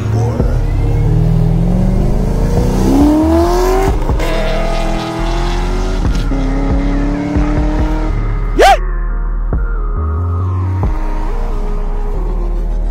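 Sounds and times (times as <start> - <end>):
car engine accelerating: 0.0 - 8.6
music with bass beat: 0.0 - 12.9.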